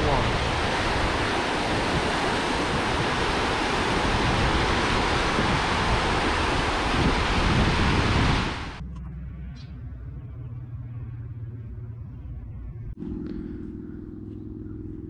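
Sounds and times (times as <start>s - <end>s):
water rushing through sluices: 0.0s - 8.8s.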